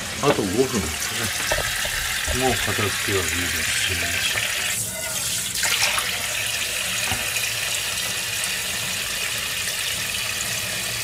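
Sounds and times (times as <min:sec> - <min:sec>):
tap running into steel sink: 0:01.3 - 0:02.9, 0:07.0 - 0:07.4.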